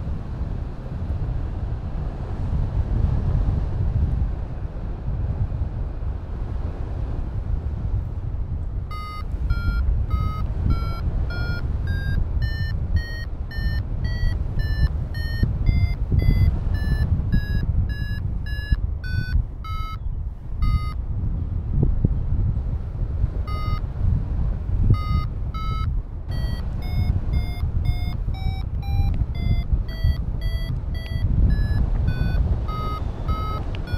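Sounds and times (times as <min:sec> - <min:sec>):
wind over microphone: 0:00.0 - 0:33.9
variometer short beeps: 0:08.9 - 0:21.0, 0:23.5 - 0:23.9, 0:24.9 - 0:33.9.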